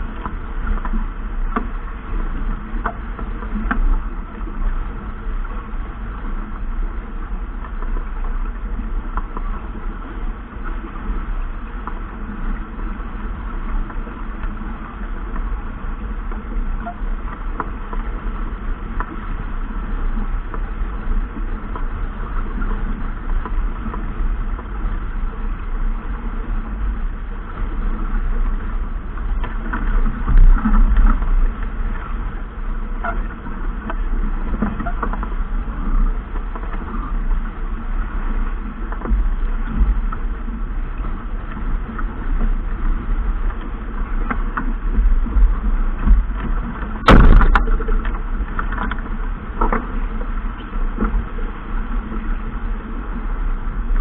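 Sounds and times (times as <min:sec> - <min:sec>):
wind buffeting microphone: 0:00.0 - 0:54.0
clicks and knocks: 0:47.0 - 0:49.8.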